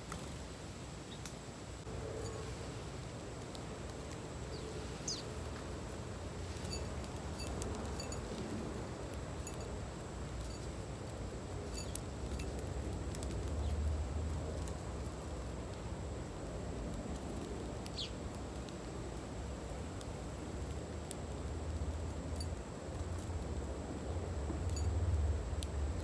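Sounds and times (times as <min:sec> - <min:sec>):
small birds chirping: 0:03.4 - 0:08.3, 0:09.0 - 0:13.9, 0:17.1 - 0:19.0.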